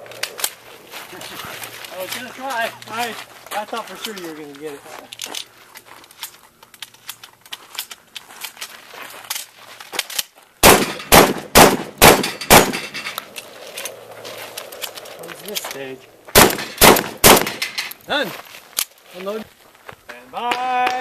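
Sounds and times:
shotgun shots: 10.6 - 13.1, 16.3 - 17.8.

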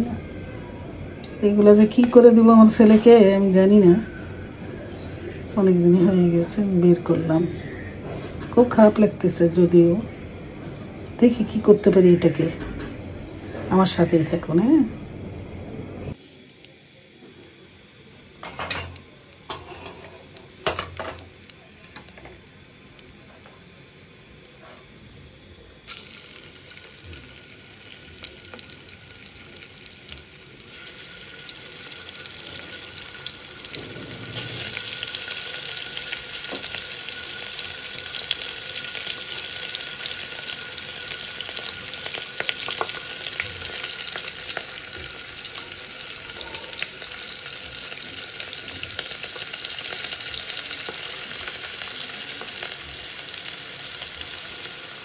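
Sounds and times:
hot oil sizzling in a pot: 16.1 - 55.0.

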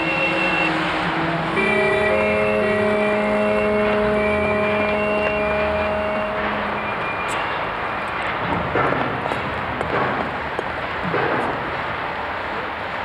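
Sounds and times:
steady mechanical drone: 0.0 - 13.0
dense machinery clatter: 8.1 - 12.1.

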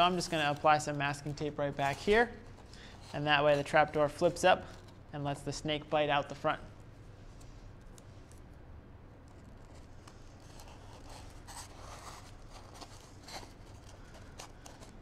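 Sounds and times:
tape rubbing and scraping: 0.0 - 5.1, 9.2 - 15.0.

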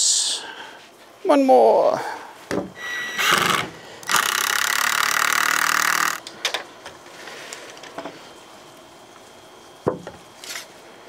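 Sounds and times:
cordless drill driving screw: 2.9 - 6.2
wooden boards knocking: 9.8 - 10.2.

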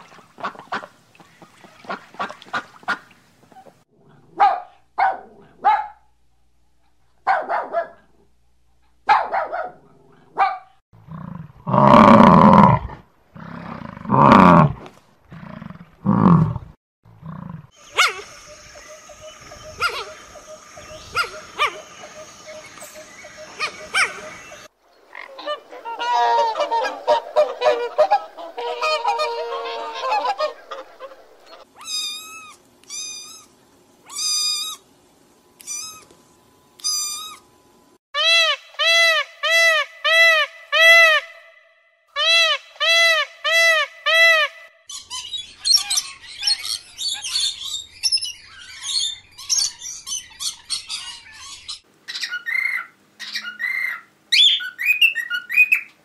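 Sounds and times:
peacock honking calls: 17.8 - 32.3, 38.2 - 44.8.

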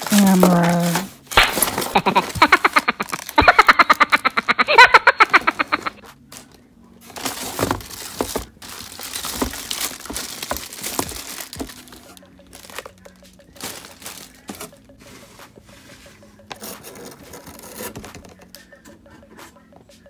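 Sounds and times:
plastic packaging crinkling: 0.0 - 4.4, 5.7 - 14.8
pulsing comic laughter: 1.7 - 6.0
items knocking in cardboard box: 7.2 - 12.9.

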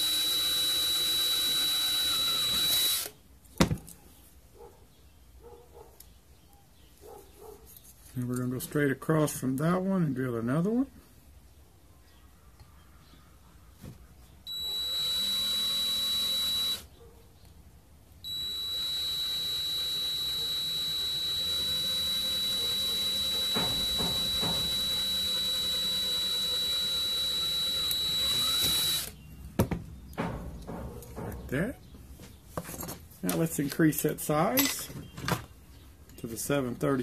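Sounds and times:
cordless drill whining: 0.0 - 3.2, 14.5 - 16.9, 18.2 - 29.2.

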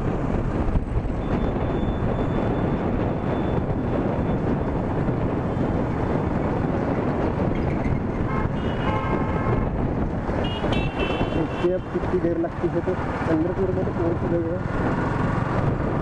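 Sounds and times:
wind rushing over microphone: 0.0 - 16.0
vehicle horns: 8.2 - 9.7, 10.4 - 12.0.

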